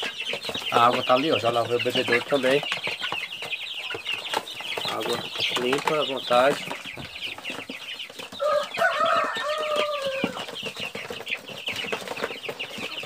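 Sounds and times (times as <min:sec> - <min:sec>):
chicks cheeping: 0:00.0 - 0:13.0
chicken drawn-out call: 0:08.1 - 0:10.8.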